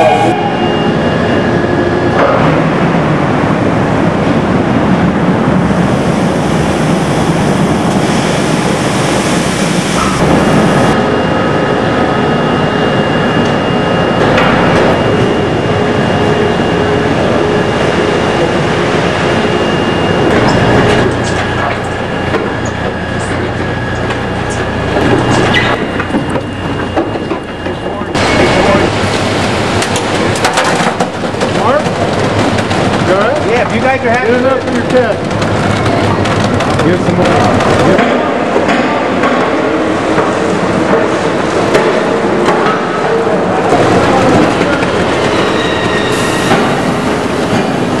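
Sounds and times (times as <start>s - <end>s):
machinery rumbling din: 0.0s - 48.0s
steady machine tones: 9.2s - 30.5s.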